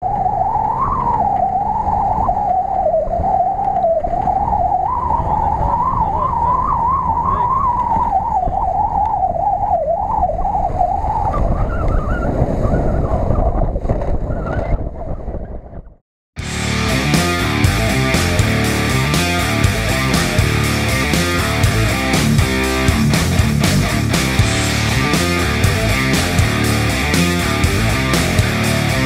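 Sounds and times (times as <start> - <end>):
rock music: 16.4 - 29.0.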